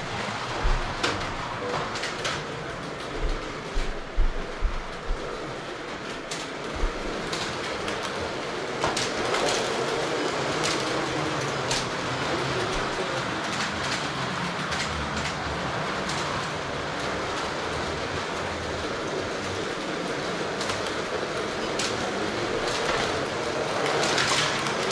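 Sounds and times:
slot cars whirring on track: 0.0 - 24.9.

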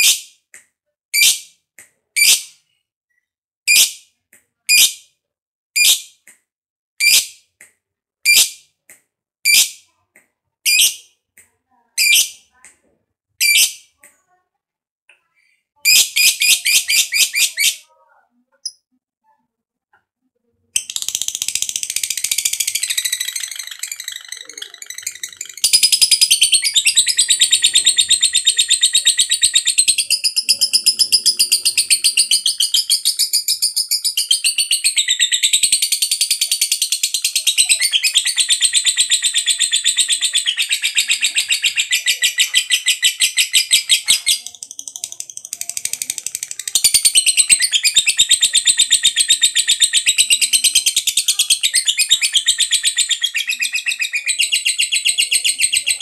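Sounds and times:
lovebird rapid shrill trill: 20.9 - 36.8.

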